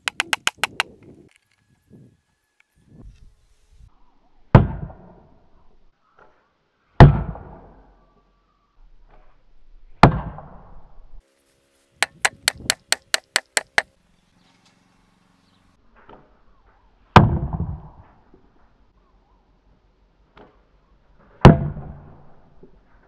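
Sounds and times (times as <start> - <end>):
hatchet knocking on wooden planks: 0.0 - 0.9, 12.0 - 13.9
arrow thudding into wooden shield: 4.5 - 5.2, 10.0 - 10.6, 21.4 - 22.1.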